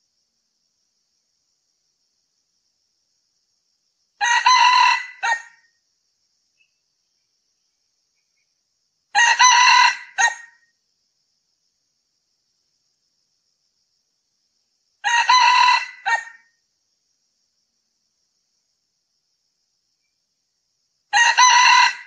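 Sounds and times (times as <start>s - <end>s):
rooster crowing: 4.2s - 5.6s, 9.1s - 10.6s, 15.0s - 16.5s, 21.1s - 22.0s.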